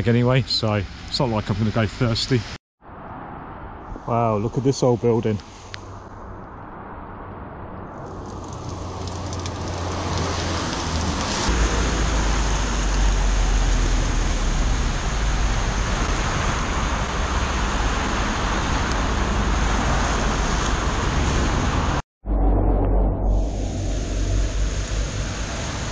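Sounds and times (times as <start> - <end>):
low rumble: 5.6 - 25.9
heavy rain on plastic: 7.9 - 21.7.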